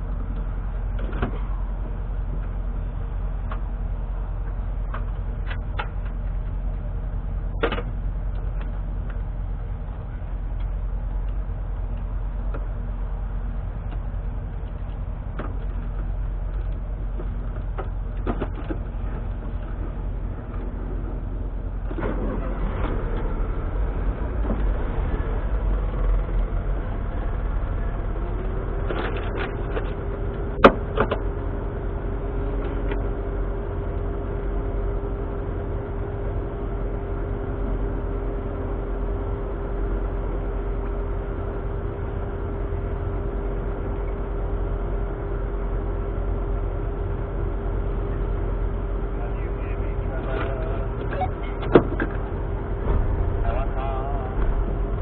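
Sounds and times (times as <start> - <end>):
car engine running: 0.0 - 55.0
steady low rumble: 0.0 - 55.0
steady tone: 29.6 - 55.0.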